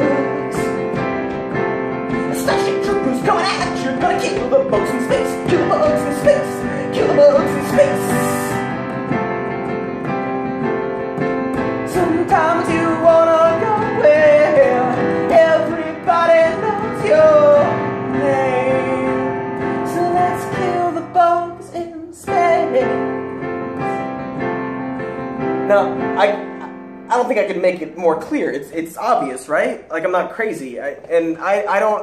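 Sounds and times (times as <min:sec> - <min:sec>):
man singing: 0:00.0 - 0:01.0, 0:02.2 - 0:08.7, 0:11.9 - 0:23.1
digital piano ballad: 0:00.0 - 0:32.0.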